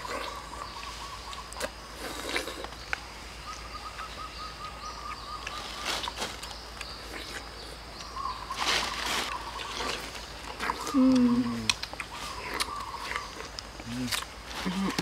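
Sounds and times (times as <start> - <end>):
bird trilling: 8.0 - 13.5.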